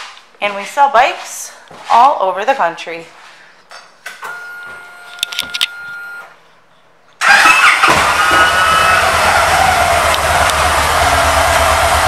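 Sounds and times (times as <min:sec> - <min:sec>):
motorcycle engine starting and idling: 0:07.2 - 0:12.0.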